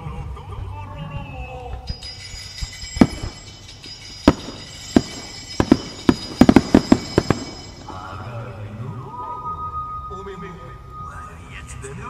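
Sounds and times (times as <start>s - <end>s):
firework shells bursting: 1.9s - 8.4s.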